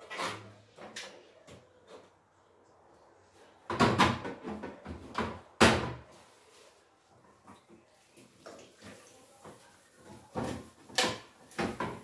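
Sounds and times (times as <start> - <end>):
hard knocks and clatters: 3.7 - 6.1.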